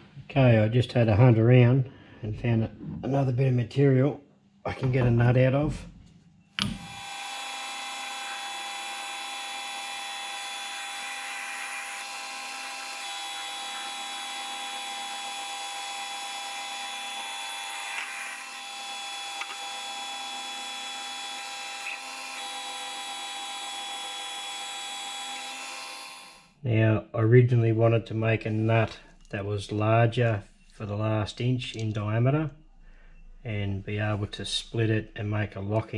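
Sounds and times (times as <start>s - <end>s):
metal lathe whining: 6.6s - 26.5s.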